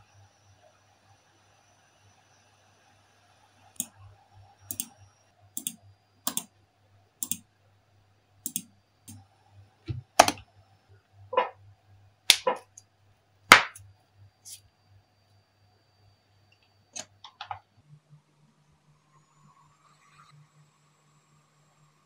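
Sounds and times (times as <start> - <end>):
computer mouse clicks: 3.8 - 4.0, 4.7 - 5.0, 5.6 - 6.5, 7.2 - 7.4, 8.5 - 9.2
laptop key presses: 5.6 - 6.4, 9.9 - 10.4.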